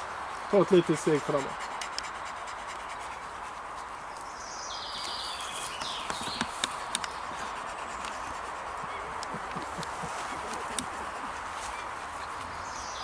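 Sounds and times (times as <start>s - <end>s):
outdoor background noise: 0.0s - 13.0s
sharp clicks: 5.8s - 7.2s.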